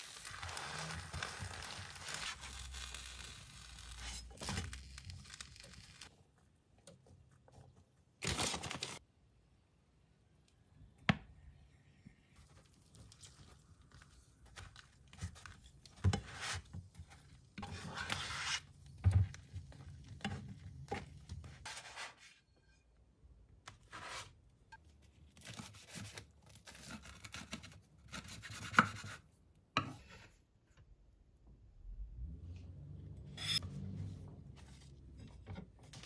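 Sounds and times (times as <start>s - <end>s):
spatula scraping a frying pan: 17.6s - 18.7s.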